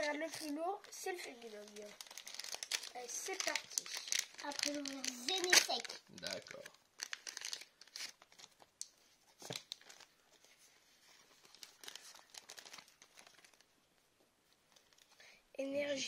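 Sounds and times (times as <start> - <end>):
cards rustling: 0.0 - 6.4
foil wrapper crinkling and tearing: 0.0 - 10.1, 11.2 - 13.7.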